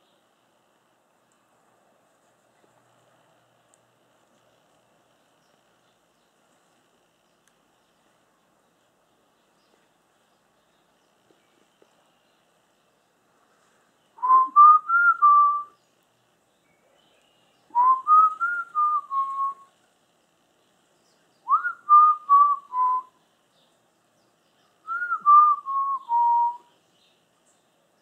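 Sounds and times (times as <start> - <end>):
person whistling phrases: 14.2 - 15.7.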